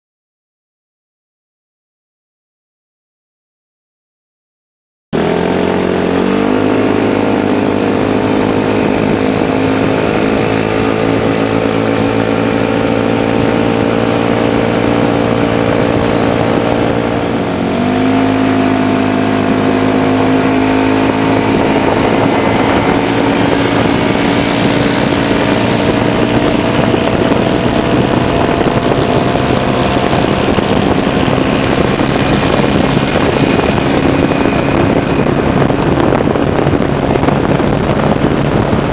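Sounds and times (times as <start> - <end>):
buggy engine at full throttle: 5.2 - 38.9.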